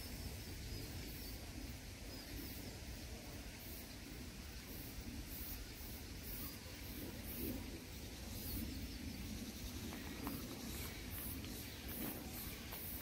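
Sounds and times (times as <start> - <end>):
faint bird chirp: 3.6 - 13.0.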